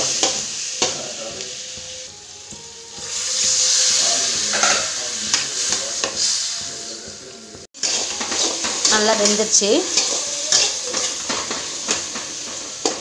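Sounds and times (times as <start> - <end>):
vegetables sizzling in hot oil: 0.0 - 13.0
spatula scraping a pan: 3.0 - 7.0, 7.8 - 13.0.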